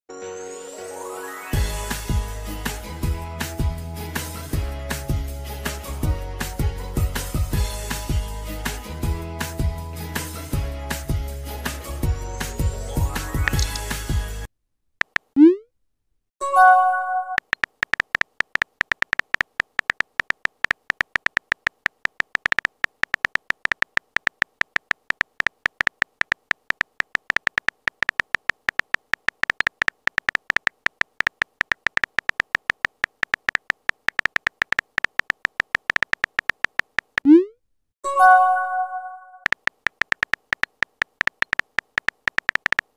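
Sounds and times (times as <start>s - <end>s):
rapid keyboard typing clicks: 15.0s - 15.4s, 17.3s - 37.3s, 39.4s - 42.9s.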